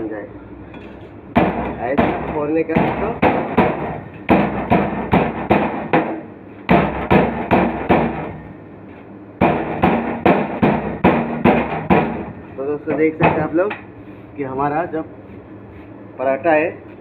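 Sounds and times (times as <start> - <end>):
rolling pin beating flatbread: 1.4 - 8.4, 9.4 - 12.4.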